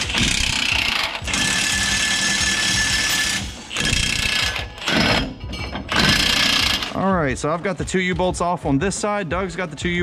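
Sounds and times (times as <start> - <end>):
impact wrench hammering: 0.0 - 7.0.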